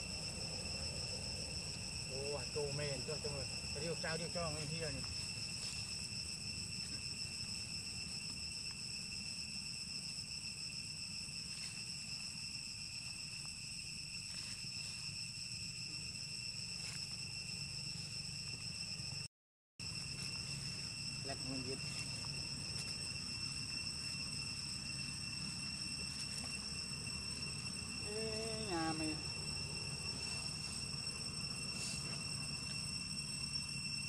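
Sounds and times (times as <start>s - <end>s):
insect chorus ringing tone: 0.0s - 34.0s.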